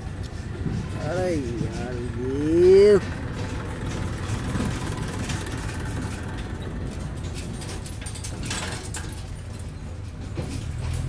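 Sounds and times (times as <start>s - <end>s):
diesel engine rumbling: 0.0s - 11.0s.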